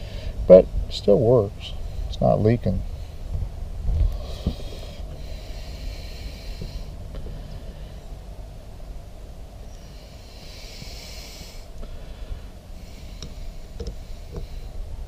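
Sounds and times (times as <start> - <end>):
steady low rumble: 0.0 - 15.0
hiss: 4.2 - 7.0, 9.8 - 12.1, 12.8 - 14.8.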